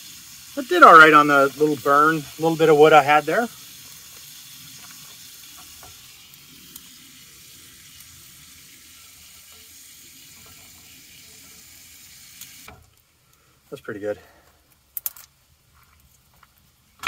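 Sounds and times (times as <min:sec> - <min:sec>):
sausage sizzling in frying pan: 0:00.0 - 0:12.9.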